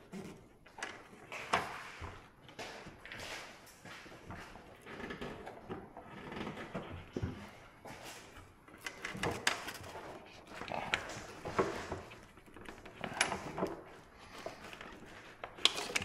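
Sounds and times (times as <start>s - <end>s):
handling clicks and knocks: 2.4s - 16.0s.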